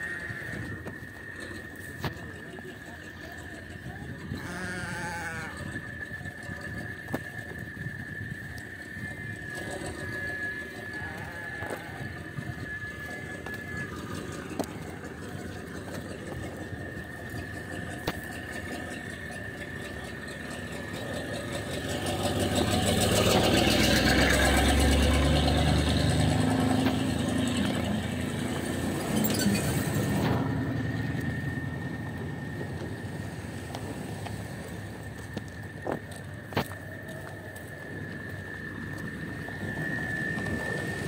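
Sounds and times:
vehicle engine driving past: 8.5s - 41.0s.

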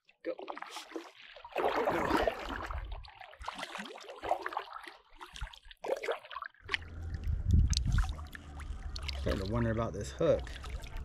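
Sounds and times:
water splashes and drips: 0.0s - 11.0s
low rumble: 6.7s - 11.0s.

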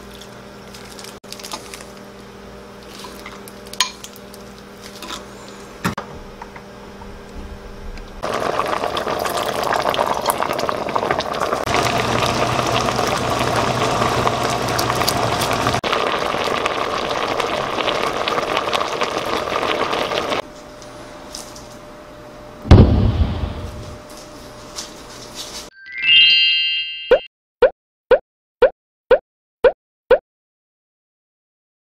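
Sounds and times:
stew bubbling in a pot: 8.2s - 20.4s
loud thump: 22.6s - 24.0s.

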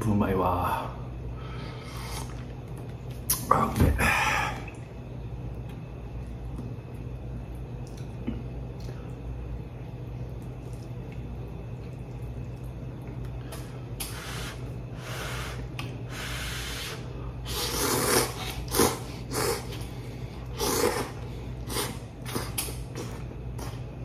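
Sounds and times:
person slurping noodles: 1.8s - 2.5s, 14.0s - 19.8s, 20.5s - 23.2s.

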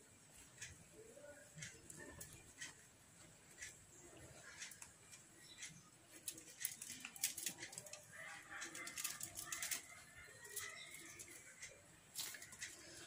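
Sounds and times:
small ticks: 0.3s - 13.0s
cling film and foil crinkling: 6.2s - 11.4s.

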